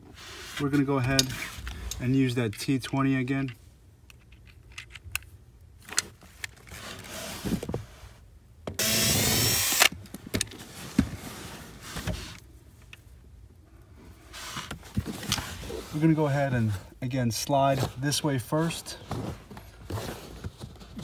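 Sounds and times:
cordless drill running: 8.8s - 9.9s.

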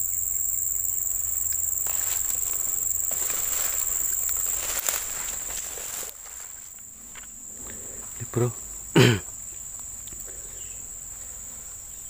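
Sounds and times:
high-pitched insect buzz: 0.0s - 12.0s
footsteps rustling through grass: 1.7s - 8.2s.

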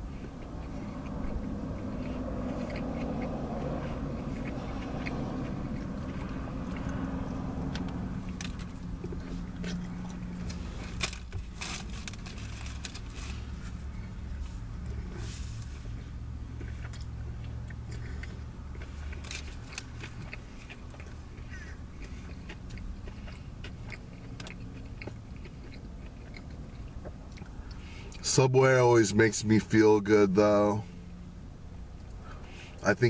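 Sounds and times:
man chewing a sandwich: 0.0s - 28.4s, 31.3s - 32.8s
car interior hum: 0.0s - 33.0s.

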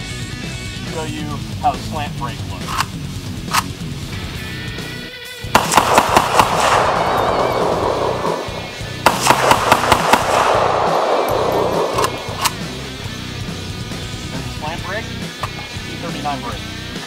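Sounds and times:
rifle firing bursts: 5.5s - 13.1s
single rifle shots: 5.5s - 13.1s
rolling gunshot echo: 5.6s - 13.1s.

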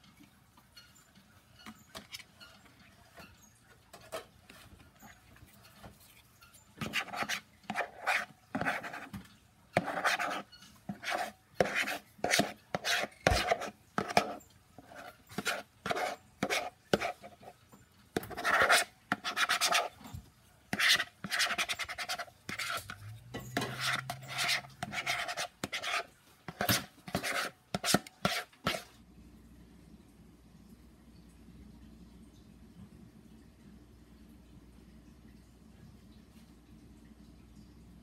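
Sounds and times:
spatula scraping thick mixture: 6.8s - 9.1s, 9.8s - 17.6s, 18.2s - 20.1s, 20.8s - 29.0s.

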